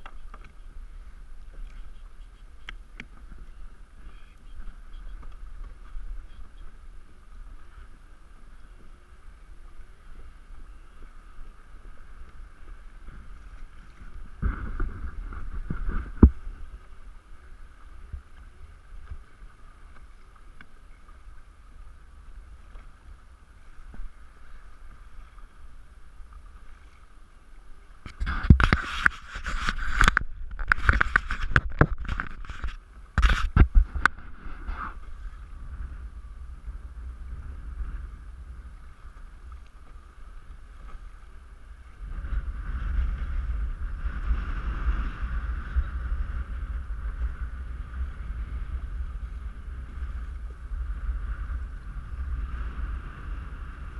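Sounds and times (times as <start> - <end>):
water rushing: 0.0 - 43.0
water rumbling along kayak hull: 0.0 - 53.9.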